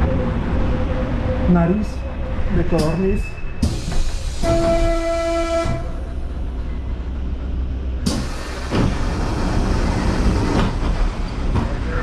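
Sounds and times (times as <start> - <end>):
metro car rumble: 0.0 - 12.0
rush of air from doors: 3.6 - 4.7, 8.0 - 11.5.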